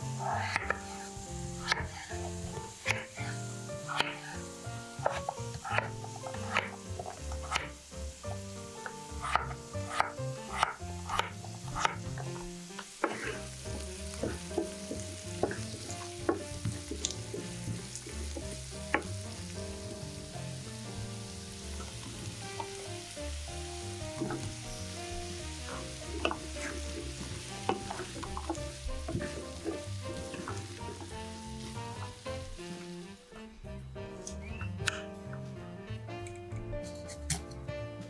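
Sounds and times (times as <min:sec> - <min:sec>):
vegetables sizzling in oil: 0:00.0 - 0:33.2
knife chopping on wooden board: 0:00.3 - 0:00.9, 0:01.6 - 0:04.4, 0:05.0 - 0:07.8, 0:08.8 - 0:12.4, 0:13.0 - 0:13.4, 0:14.1 - 0:19.1
wooden spatula stirring: 0:08.8 - 0:19.1, 0:23.8 - 0:33.1.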